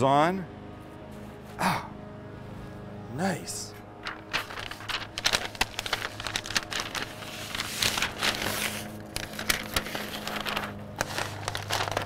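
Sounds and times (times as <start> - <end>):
paper rustling and crinkling: 3.8 - 12.0.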